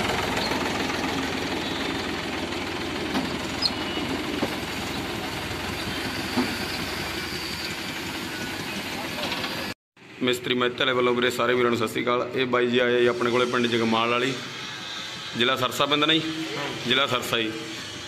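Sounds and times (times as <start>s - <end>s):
tractor diesel engine running: 0.0s - 9.8s.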